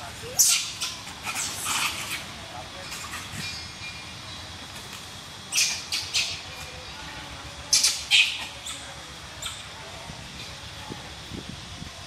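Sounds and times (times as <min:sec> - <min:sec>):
monkeys screeching: 0:00.0 - 0:04.2, 0:05.5 - 0:07.0, 0:07.6 - 0:09.8.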